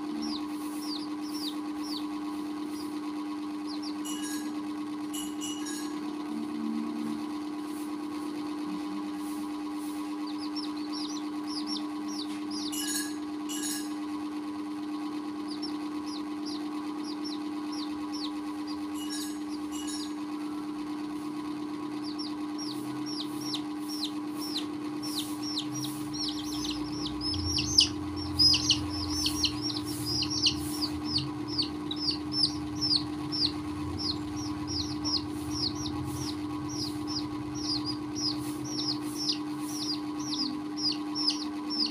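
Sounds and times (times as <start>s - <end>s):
chicks peeping: 0.0s - 3.0s, 3.6s - 4.4s, 9.8s - 13.1s, 15.4s - 20.2s, 21.9s - 41.9s
steady low hum: 0.0s - 41.9s.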